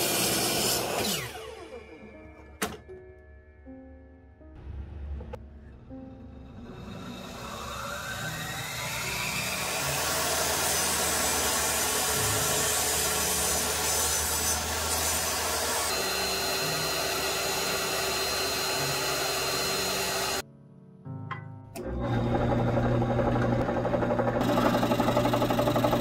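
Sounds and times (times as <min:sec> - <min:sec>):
table saw cutting wood: 0:00.0 - 0:02.0, 0:06.4 - 0:20.4, 0:21.8 - 0:26.0.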